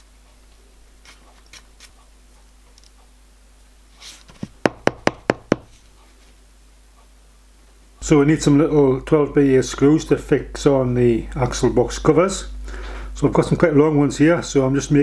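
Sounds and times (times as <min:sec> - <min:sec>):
brass block knocking on workbench: 0:04.6 - 0:05.7.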